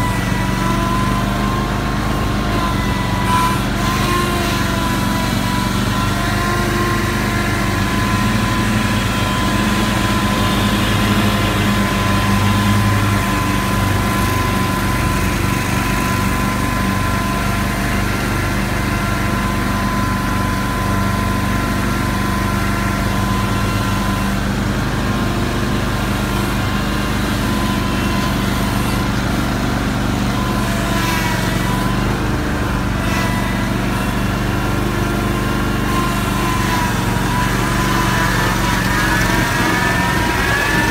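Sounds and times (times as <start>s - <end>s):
mower engine drone: 0.0s - 40.9s.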